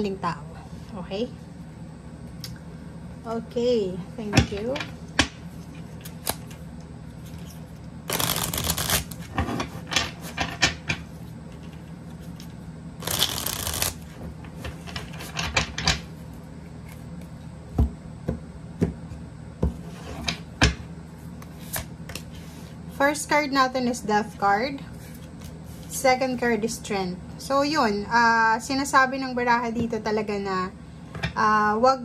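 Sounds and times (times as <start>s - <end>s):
cards being shuffled: 7.2s - 9.4s, 11.5s - 14.2s.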